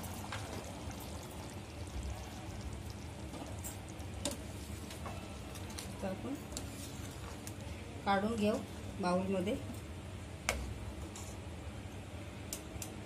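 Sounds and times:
gravy bubbling in a pan: 0.0s - 9.1s.

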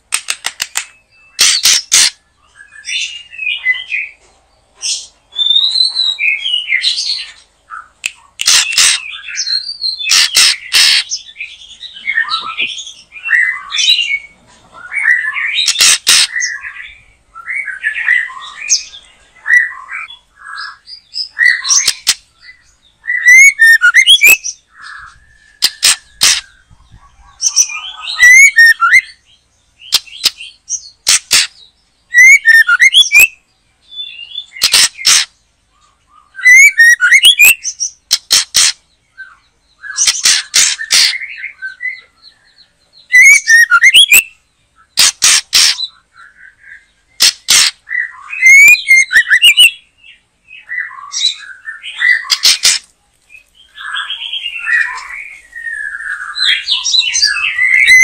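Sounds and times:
bird harsh notes: 0.0s - 4.2s, 4.9s - 26.9s, 27.5s - 33.4s, 34.0s - 35.4s, 36.2s - 42.0s, 43.1s - 52.9s, 53.6s - 58.0s
bird singing whistled phrases: 5.3s - 7.1s, 11.7s - 26.6s, 27.5s - 29.2s, 32.1s - 34.8s, 36.2s - 37.8s, 43.1s - 45.0s, 47.9s - 49.8s, 53.6s - 58.0s.

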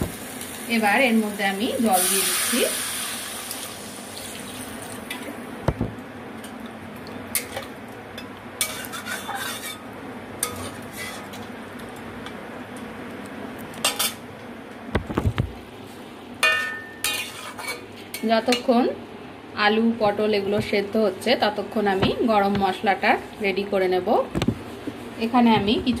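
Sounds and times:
steady cooking hiss: 0.0s - 12.9s, 15.6s - 26.0s
metal spatula scraping a pan: 8.6s - 9.8s, 10.4s - 11.4s, 16.6s - 17.8s.

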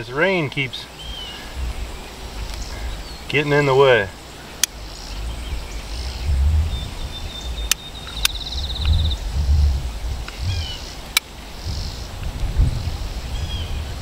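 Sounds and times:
chirps: 0.6s - 12.1s
wind on microphone: 0.9s - 14.0s
sharp clicks: 4.6s - 4.8s, 7.6s - 9.2s.

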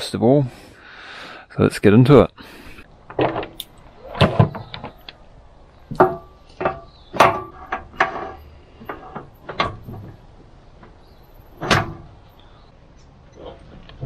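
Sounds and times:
steel chain clanking against metal: 5.9s - 12.4s.

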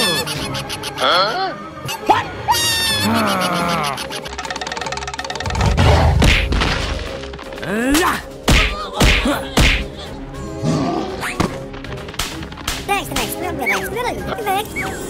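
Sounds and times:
background music: 0.0s - 15.0s
cartoon whacks and thuds: 5.6s - 7.0s, 8.0s - 9.9s.

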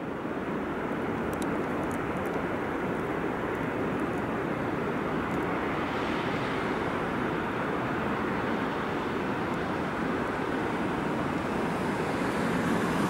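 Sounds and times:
train rumbling on rails: 0.0s - 13.0s
faint ticks: 1.2s - 4.3s.

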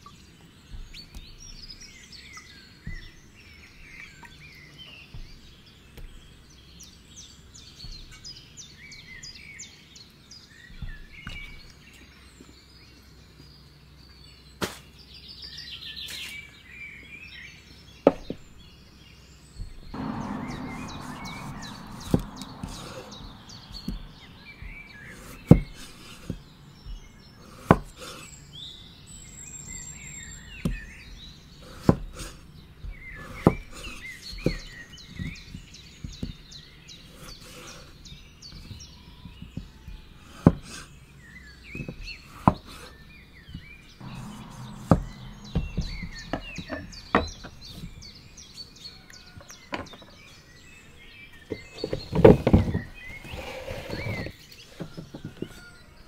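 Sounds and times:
birds chirping: 0.0s - 56.0s
knife chopping on wooden board: 20.6s - 28.2s, 31.6s - 36.4s, 38.6s - 40.8s.

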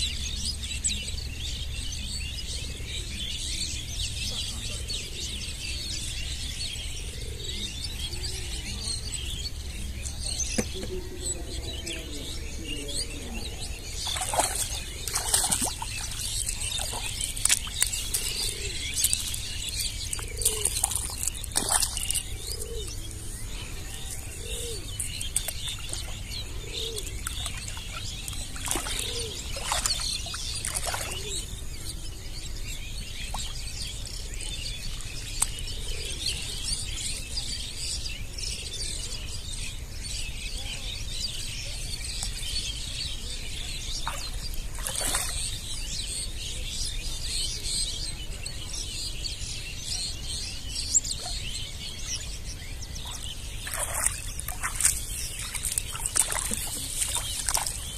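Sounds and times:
birds chirping: 0.0s - 57.9s
dove cooing: 18.0s - 27.4s, 28.2s - 29.9s.

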